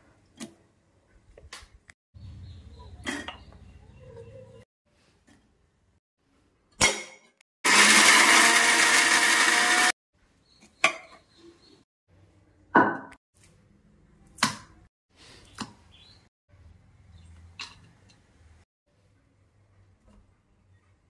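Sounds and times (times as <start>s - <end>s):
mixer grinder running: 7.6s - 10.0s.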